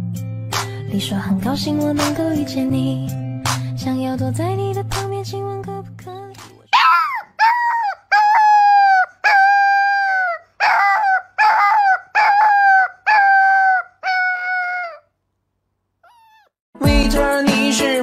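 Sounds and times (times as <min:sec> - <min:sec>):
dog howling: 0:06.7 - 0:15.0, 0:16.1 - 0:16.5.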